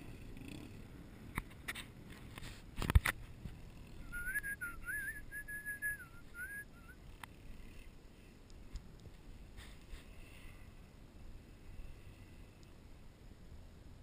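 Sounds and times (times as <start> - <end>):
person whistling a tune: 4.1 - 7.0.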